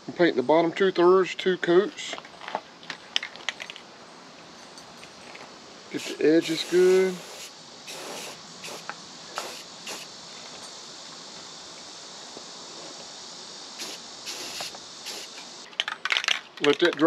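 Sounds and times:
crickets chirping: 0.0 - 17.0
spray paint can hissing: 5.9 - 10.2, 13.8 - 15.7.

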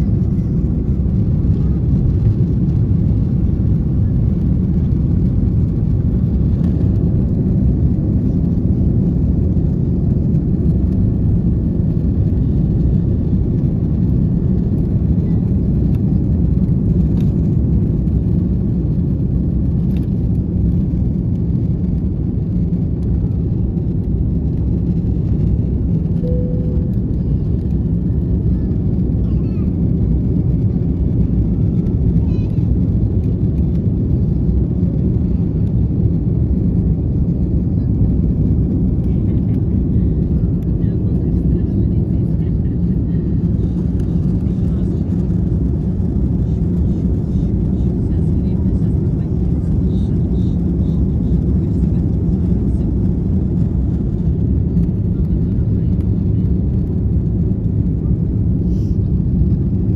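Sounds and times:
jet engines rumbling in cabin: 0.0 - 59.9.

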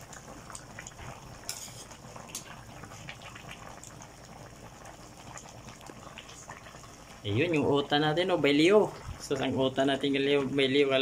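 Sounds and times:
ladle moving in broth: 0.0 - 7.2
soup bubbling and popping: 0.0 - 11.0.

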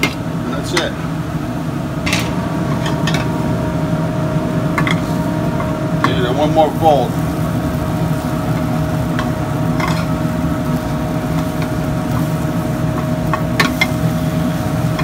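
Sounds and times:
kitchen hum: 0.0 - 15.0
spatula tapping and scraping pan: 9.1 - 10.1, 12.9 - 14.0.

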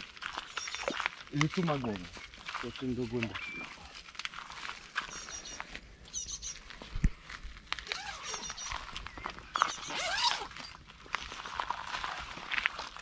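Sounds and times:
birds chirping: 0.3 - 4.0, 5.0 - 6.8, 7.9 - 10.6.

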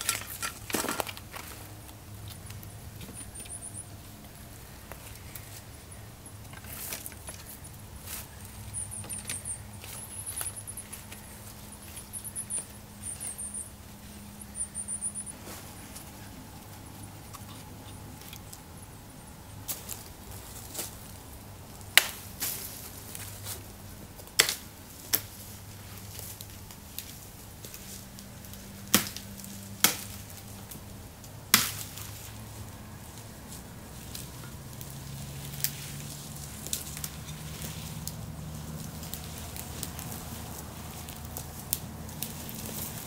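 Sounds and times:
dry wood cracking and knocking: 0.0 - 3.6, 6.4 - 12.8, 26.2 - 32.4.

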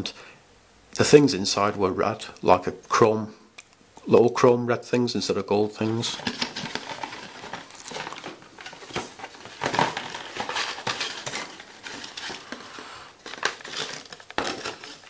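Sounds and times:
cardboard rustling and scraping: 5.8 - 15.0.

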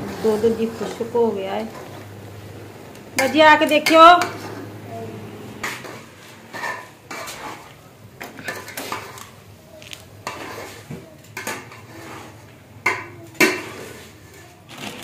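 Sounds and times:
metal spoon scraping a pot: 3.2 - 4.7, 5.6 - 9.4, 10.2 - 15.0.

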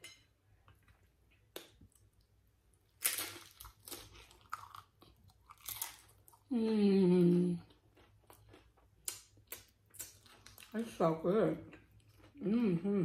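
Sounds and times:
chips crunching: 2.9 - 6.4.

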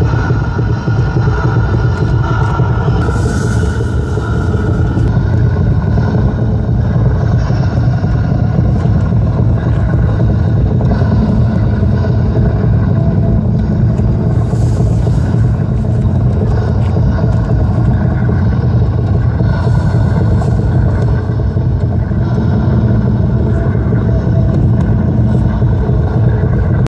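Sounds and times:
low rumble: 0.0 - 26.9.

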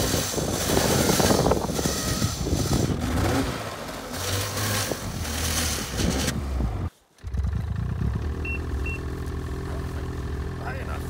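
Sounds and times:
snowmobile engine idling: 0.0 - 11.0
snowmobile engine with strong hiss: 0.0 - 11.0.

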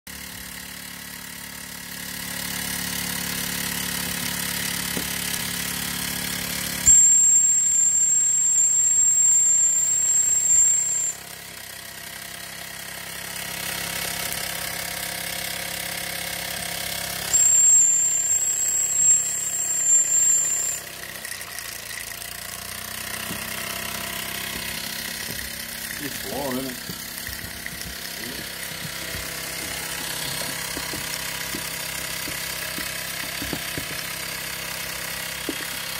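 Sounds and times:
toy steam engine running: 0.1 - 35.9
shrill steam whistle: 6.7 - 11.3, 17.2 - 21.0.

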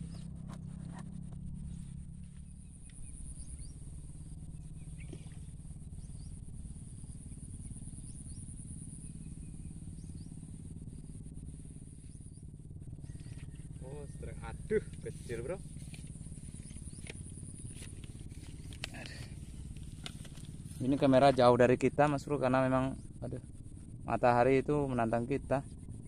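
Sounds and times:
low steady rumble: 0.0 - 26.0
high-pitched insect drone: 1.2 - 26.0
rising bird chirps: 1.6 - 11.1.

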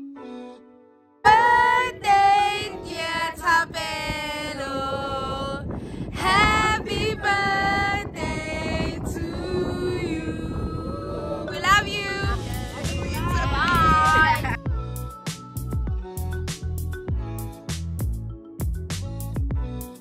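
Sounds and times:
women and children singing: 1.3 - 5.6, 6.2 - 14.6.

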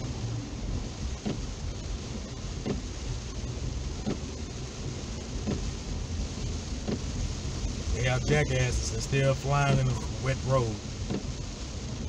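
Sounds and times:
car driving on flooded road: 0.0 - 12.0
heavy rain on car: 0.0 - 12.0
windshield wipers sweeping: 0.0 - 12.0.

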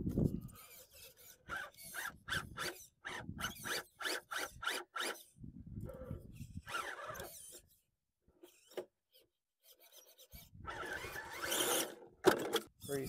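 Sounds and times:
electric motor whirring in bursts: 6.6 - 7.5, 10.6 - 12.0.

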